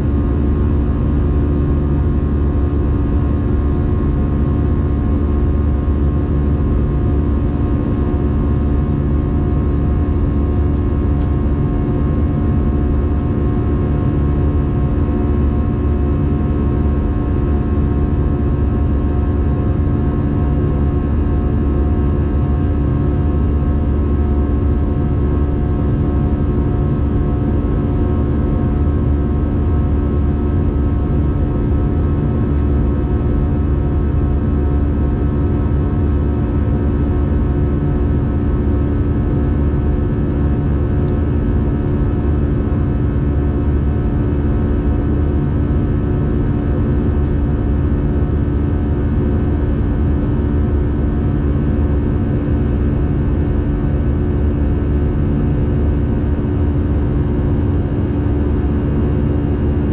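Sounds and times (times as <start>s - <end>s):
airliner engine drone: 0.0s - 59.9s
steady hum tones: 0.0s - 59.9s.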